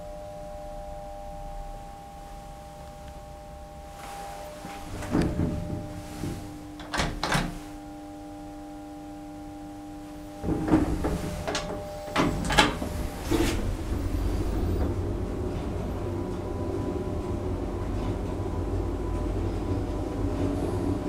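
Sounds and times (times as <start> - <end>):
lift car rumbling: 0.0 - 8.0, 10.0 - 21.0
faint high hum: 0.0 - 21.0
lift doors clunking: 3.8 - 7.8, 10.4 - 21.0.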